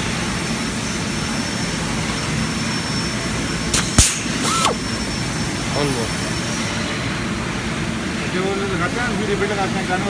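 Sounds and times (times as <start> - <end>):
rushing workshop noise: 3.2 - 7.4
sharp click: 3.7 - 4.8.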